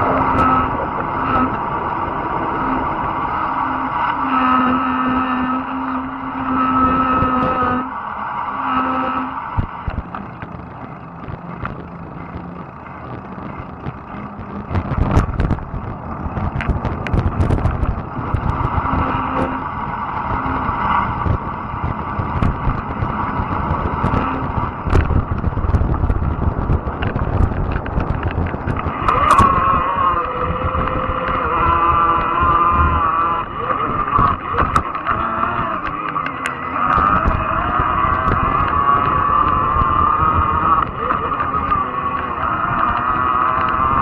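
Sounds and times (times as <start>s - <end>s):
whining tone: 0.0s - 44.0s
wind rumbling on microphone: 0.0s - 44.0s
clicks and rattles: 24.9s - 29.7s, 33.9s - 39.2s.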